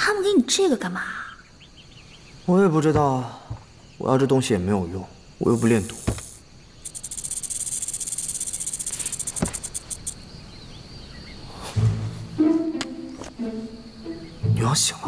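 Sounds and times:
snake hissing: 5.4 - 10.2.

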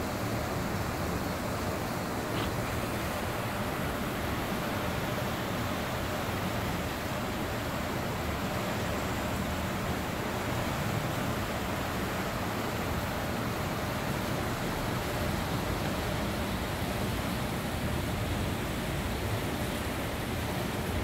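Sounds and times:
turbulent river water rushing: 0.0 - 21.0.

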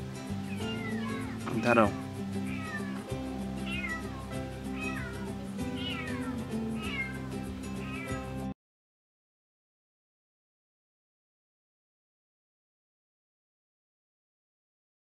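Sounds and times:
background music with beat: 0.0 - 8.5
cat meowing: 0.5 - 8.4.

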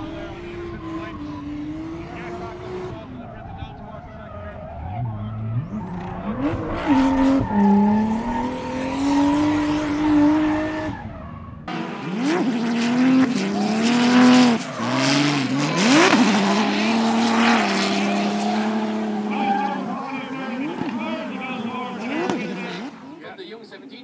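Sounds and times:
tyre squeal: 0.0 - 11.6, 12.2 - 23.2
car engine revving: 0.0 - 23.2.

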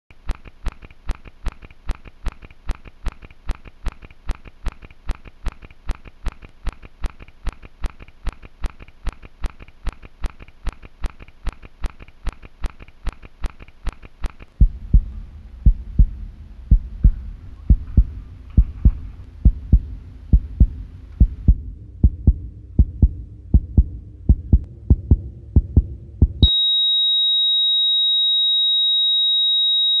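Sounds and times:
heartbeat: 0.4 - 26.5
heart monitor flatline tone: 14.6 - 30.0.

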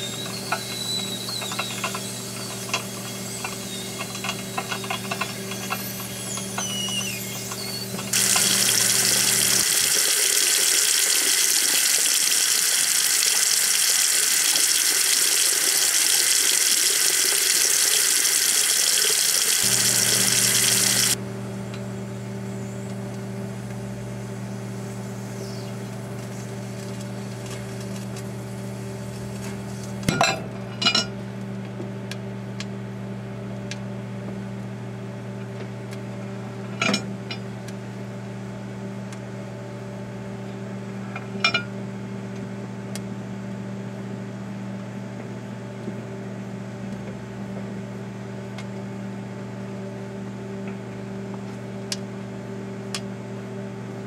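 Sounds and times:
microwave oven humming: 0.0 - 54.0
tap water running into a sink: 1.3 - 21.2.

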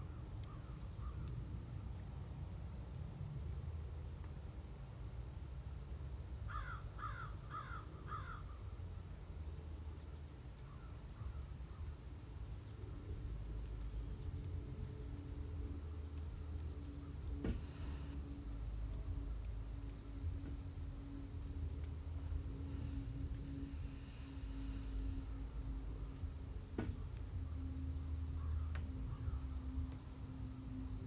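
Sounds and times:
crickets trilling: 0.0 - 31.0
crow cawing: 6.5 - 8.4
low rumble: 11.3 - 31.0.

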